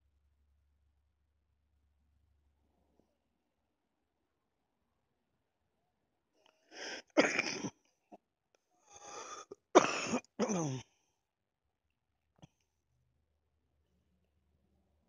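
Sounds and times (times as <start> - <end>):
sharp breath in: 6.7 - 7.1, 8.9 - 9.5
person coughing hard: 6.8 - 7.7, 9.5 - 10.9.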